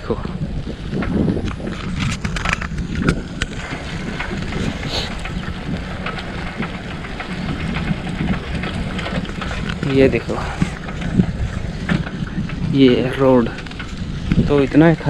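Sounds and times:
bicycle clicks and rattles: 0:00.0 - 0:15.0
low rumble: 0:00.0 - 0:15.0
wind buffeting microphone: 0:00.0 - 0:15.0.

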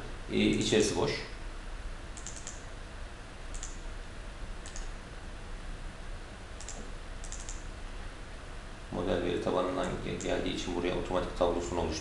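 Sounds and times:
faint low hum: 0:00.0 - 0:12.0
mouse buttons clicking: 0:02.2 - 0:02.7, 0:03.5 - 0:03.8, 0:04.6 - 0:05.0, 0:06.6 - 0:07.7.

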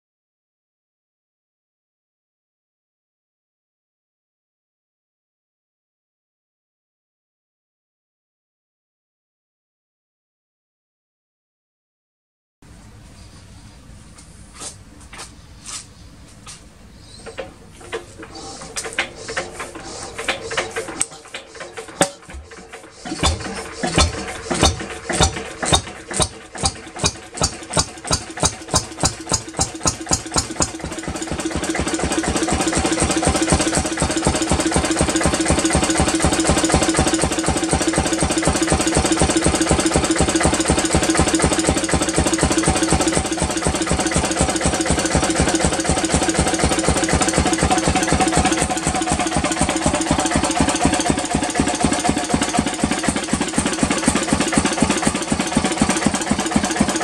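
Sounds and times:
diesel engine starting and running: 0:12.7 - 0:57.0.

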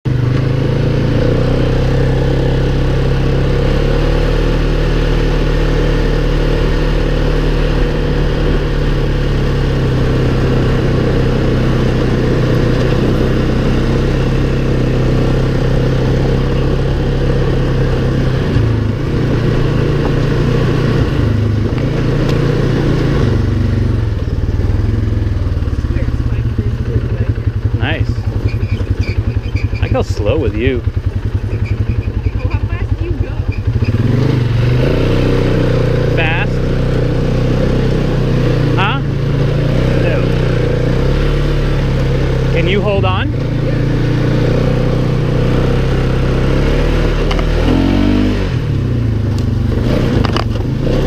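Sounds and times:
atv engine running: 0:00.1 - 0:51.0.

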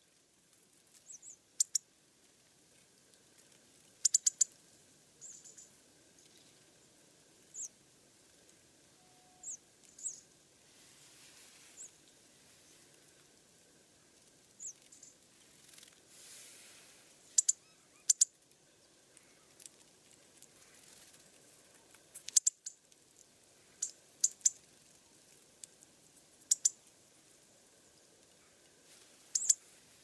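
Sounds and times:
tits calling: 0:01.0 - 0:02.0, 0:04.0 - 0:04.6, 0:05.2 - 0:06.8, 0:07.5 - 0:07.8, 0:09.0 - 0:10.4, 0:11.6 - 0:13.1, 0:14.0 - 0:16.0, 0:16.8 - 0:22.9, 0:23.6 - 0:25.2, 0:26.3 - 0:26.9, 0:27.8 - 0:30.0.

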